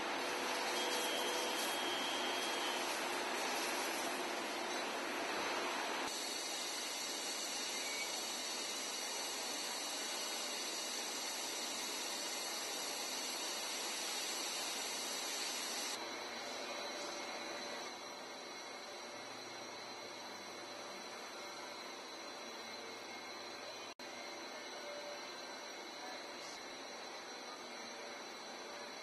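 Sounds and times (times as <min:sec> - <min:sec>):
spray booth hissing: 0:00.0 - 0:16.0.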